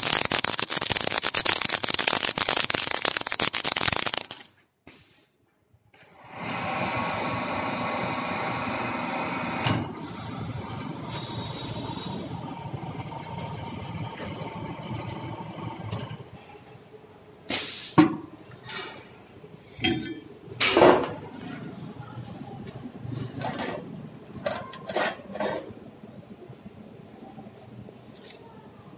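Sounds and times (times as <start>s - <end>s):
welding machine humming: 0.0s - 4.3s, 6.2s - 16.0s.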